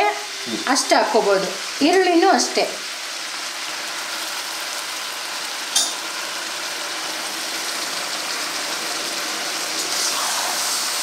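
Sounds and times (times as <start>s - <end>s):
vegetables sizzling in oil: 0.0s - 11.0s
metal plate clinking on pan: 5.7s - 6.0s.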